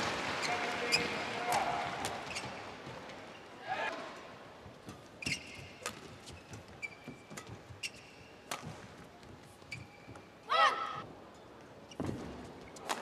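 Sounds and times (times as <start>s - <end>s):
shoes squeaking on court: 2.2s - 3.0s, 5.0s - 8.8s, 9.4s - 10.4s
rackets hitting shuttlecock: 4.8s - 6.7s, 8.4s - 9.0s.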